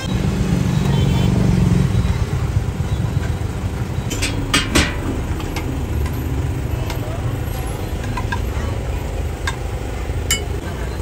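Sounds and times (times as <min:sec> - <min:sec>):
low rumble and hum: 0:01.8 - 0:10.6
metal utensils clinking: 0:04.1 - 0:10.6.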